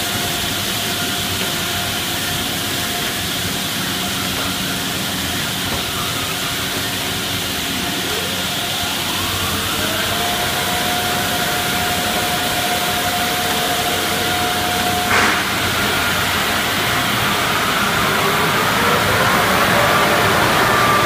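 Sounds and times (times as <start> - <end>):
car wash machine noise: 0.0 - 21.0
steady whine: 0.0 - 21.0.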